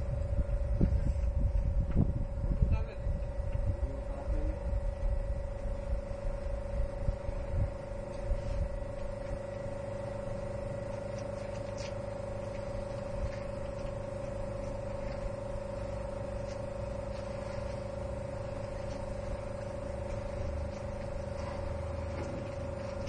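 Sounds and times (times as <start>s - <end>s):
low rumble: 0.0s - 11.1s
steady machine hum: 0.0s - 23.0s.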